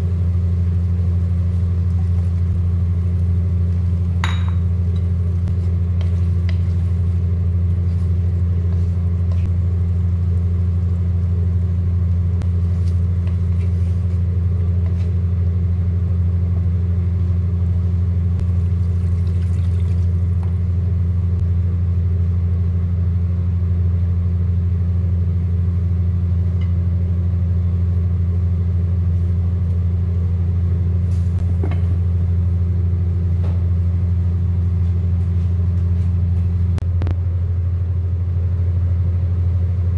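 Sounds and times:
loud low hum: 0:00.0 - 0:39.9.

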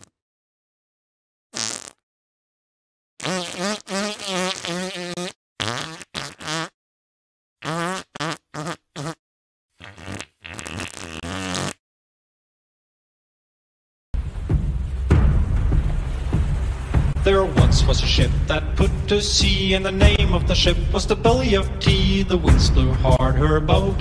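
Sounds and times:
buzzy fart-like melodic noises: 0:01.6 - 0:02.0, 0:03.2 - 0:06.8, 0:07.6 - 0:09.2, 0:09.8 - 0:11.8.

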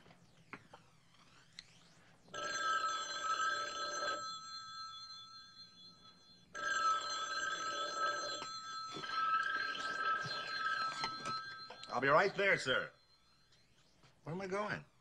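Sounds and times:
telephone bell ringing: 0:02.3 - 0:13.8.

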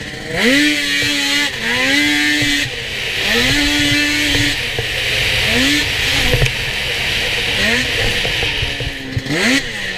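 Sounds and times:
snowmobile engine revving: 0:00.0 - 0:09.9
steady high hiss: 0:00.7 - 0:09.2.

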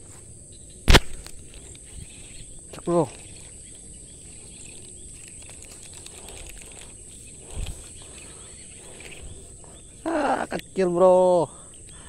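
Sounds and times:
faint outdoor noise: 0:00.0 - 0:12.0
insects droning: 0:00.0 - 0:12.0.

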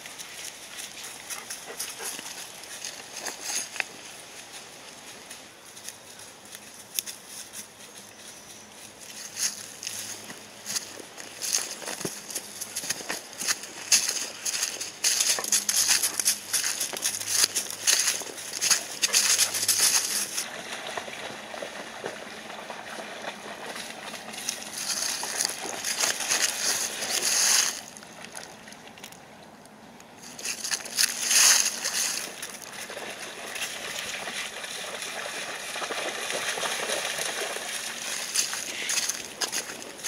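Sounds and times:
dogs splashing through water: 0:09.5 - 0:29.1, 0:30.3 - 0:40.0.

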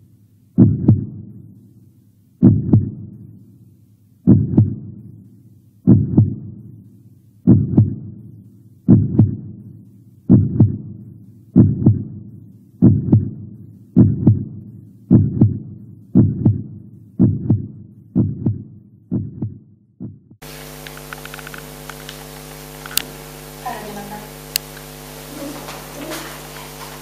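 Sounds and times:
steady electrical hum: 0:00.0 - 0:17.2, 0:20.4 - 0:27.0
heartbeat thumps: 0:00.6 - 0:01.6, 0:02.4 - 0:03.4, 0:04.2 - 0:05.2, 0:05.8 - 0:06.8, 0:07.4 - 0:20.4.

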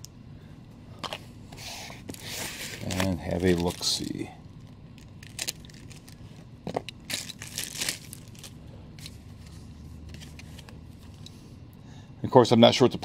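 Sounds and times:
plastic wrapping crinkling: 0:02.0 - 0:09.2.

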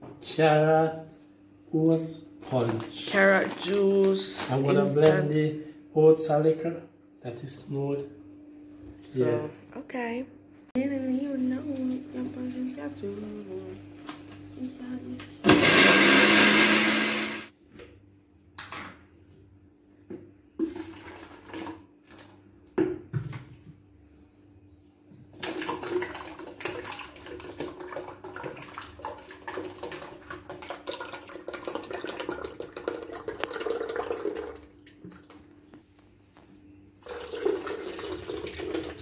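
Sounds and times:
countertop blender running: 0:15.2 - 0:17.5, 0:37.0 - 0:39.0
liquid pouring into plastic pitcher: 0:20.6 - 0:22.4, 0:25.3 - 0:35.6, 0:37.0 - 0:39.0.

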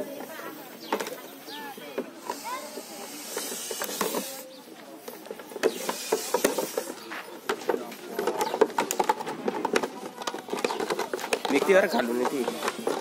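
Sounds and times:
plastic bottle crackling: 0:05.7 - 0:13.0.

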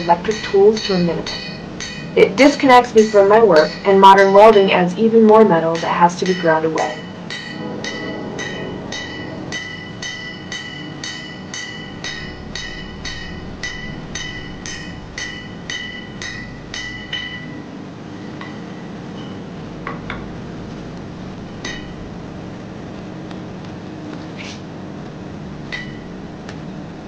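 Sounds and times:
hammer ringing on anvil: 0:00.0 - 0:04.7, 0:05.6 - 0:20.2, 0:21.5 - 0:22.1, 0:25.7 - 0:26.1.

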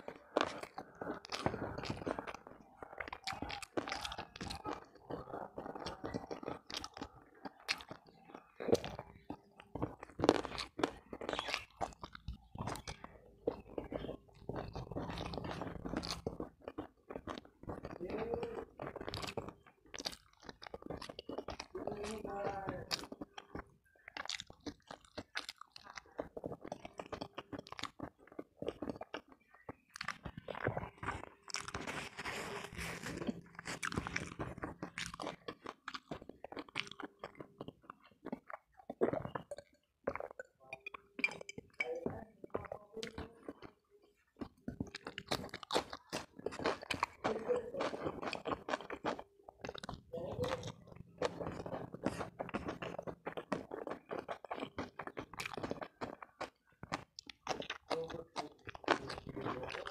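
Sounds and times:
chewing and crunchy bites: 0:00.0 - 0:59.9.

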